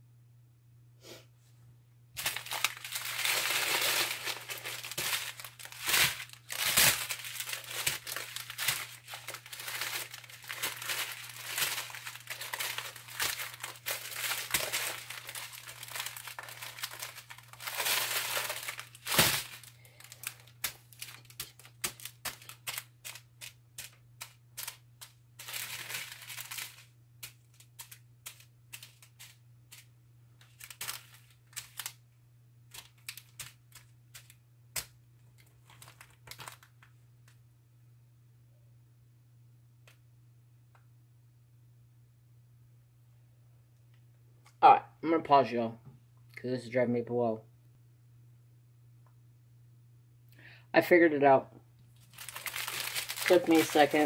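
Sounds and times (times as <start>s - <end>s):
plastic bags crinkling: 2.2s - 32.0s, 32.7s - 36.9s, 51.9s - 54.0s.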